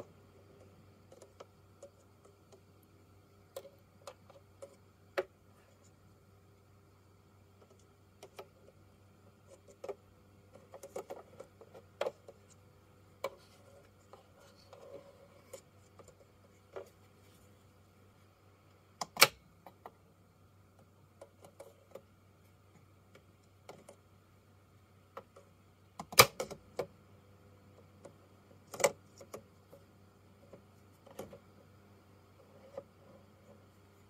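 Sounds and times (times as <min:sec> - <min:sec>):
faint low hum: 0:00.0 - 0:34.0.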